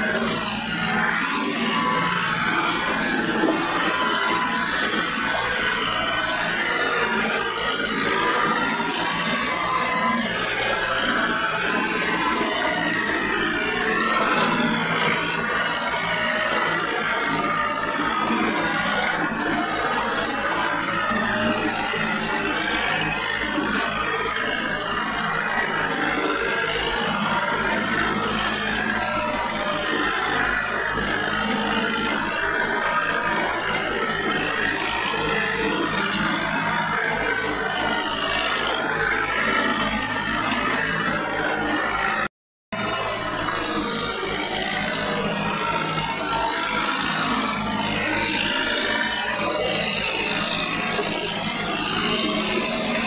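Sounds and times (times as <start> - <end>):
tractor diesel engine running: 0.0 - 53.0.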